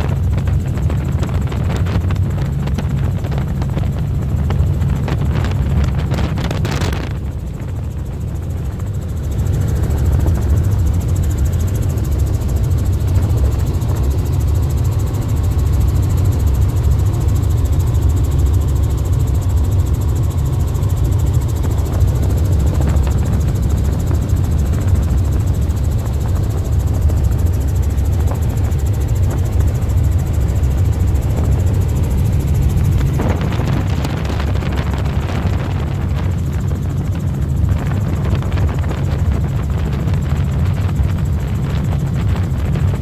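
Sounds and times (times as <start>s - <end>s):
helicopter engine and rotor drone: 0.0s - 43.0s.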